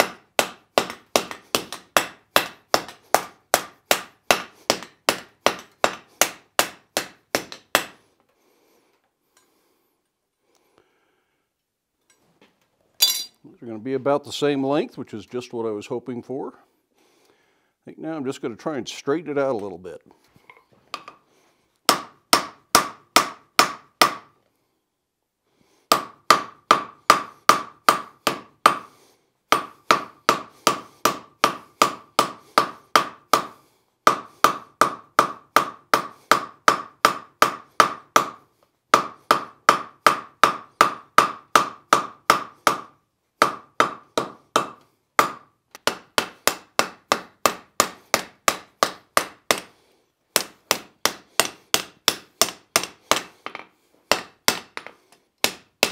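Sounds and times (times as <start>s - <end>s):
hammer striking steel on anvil: 13.0s - 13.4s.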